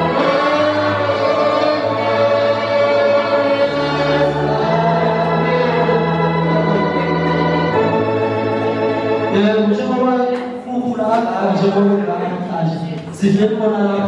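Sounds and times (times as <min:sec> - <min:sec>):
electronic organ chords: 0:00.0 - 0:10.4.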